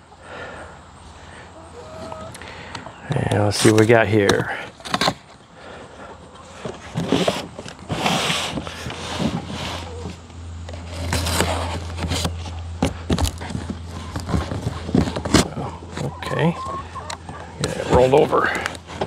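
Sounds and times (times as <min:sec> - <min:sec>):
steady low hum: 0:00.0 - 0:19.0
cardboard flaps scraping and rustling: 0:06.6 - 0:16.1.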